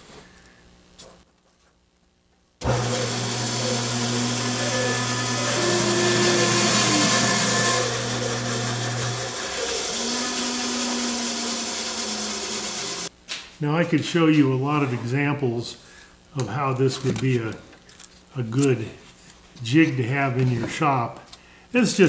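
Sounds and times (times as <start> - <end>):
bandsaw cutting wood: 2.6 - 13.1.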